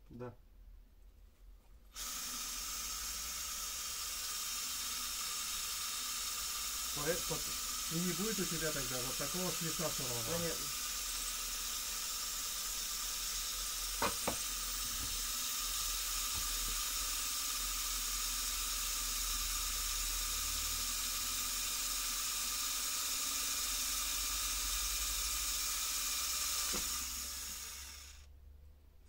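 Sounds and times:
steady hiss: 0:02.2 - 0:11.9.

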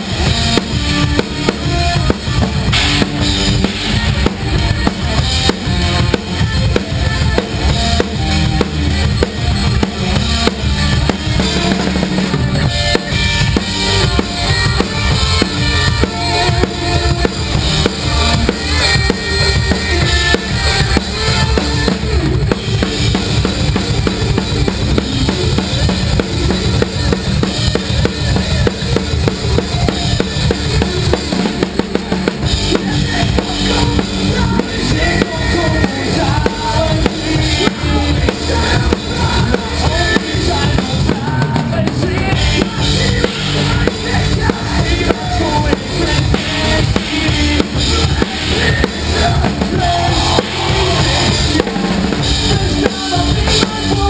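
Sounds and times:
bass drum: 0:00.0 - 0:54.0
rock band playing: 0:00.0 - 0:54.0
snare drum hits: 0:02.7 - 0:03.2
cymbal crashes: 0:02.7 - 0:04.2.

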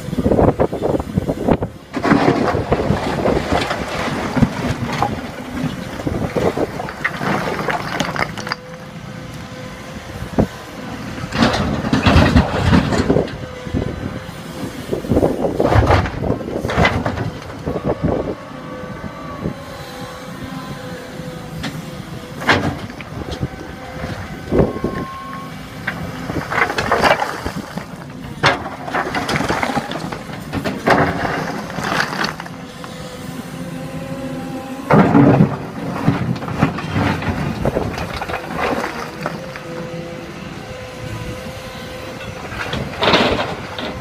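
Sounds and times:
excavator engine and hydraulics: 0:00.0 - 0:44.0
bricks clattering against bucket: 0:06.4 - 0:08.7, 0:26.4 - 0:32.5.

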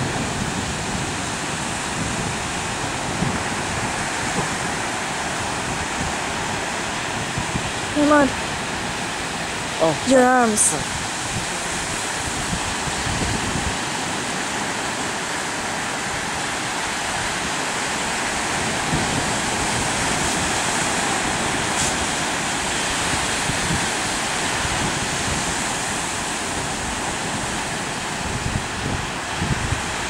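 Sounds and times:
surf washing over rocks: 0:00.0 - 0:30.0
wind buffeting microphone: 0:00.0 - 0:30.0.

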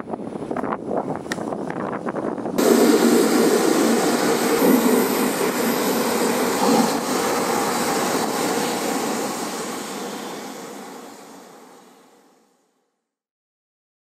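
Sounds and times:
engine roar: 0:02.6 - 0:12.1.

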